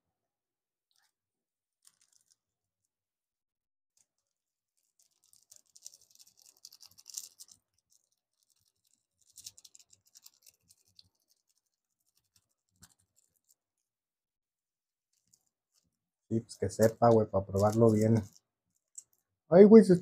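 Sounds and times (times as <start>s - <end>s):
plastic packet crinkling: 1.8s - 2.5s, 4.0s - 13.8s, 15.1s - 19.4s.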